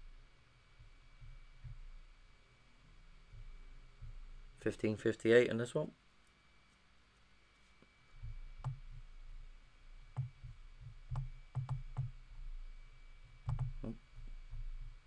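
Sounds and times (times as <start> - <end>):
low hum: 0.0 - 5.0, 7.3 - 15.0
computer mouse clicking: 8.6 - 9.0, 10.1 - 12.2, 13.4 - 14.0.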